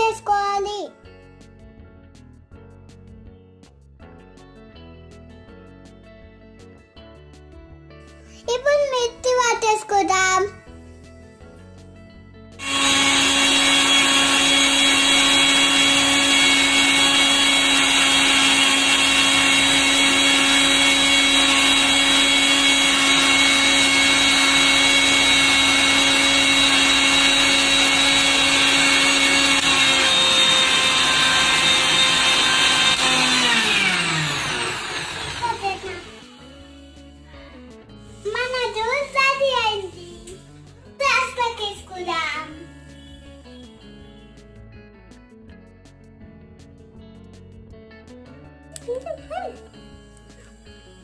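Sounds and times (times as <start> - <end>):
motor winding down: 12.6 - 37.3
mixer grinder motor whining: 12.6 - 37.4.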